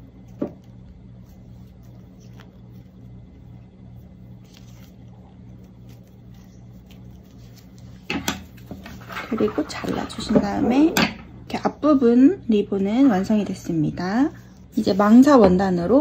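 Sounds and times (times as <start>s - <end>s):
thread and ribbon rustling: 0.0s - 10.8s, 13.1s - 16.0s
steady low hum: 0.0s - 16.0s.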